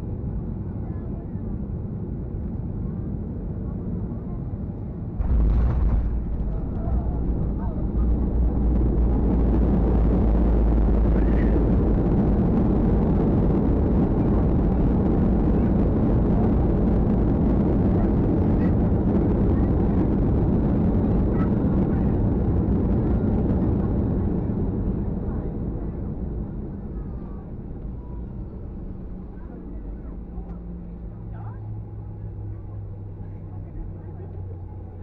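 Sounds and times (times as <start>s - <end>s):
aircraft engines roaring: 0.0s - 35.0s
wheels rumbling on runway: 0.1s - 35.0s.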